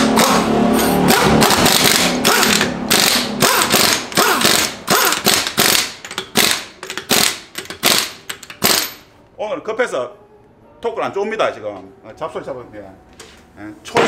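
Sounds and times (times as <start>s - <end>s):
impact wrench hammering: 0.0s - 9.1s.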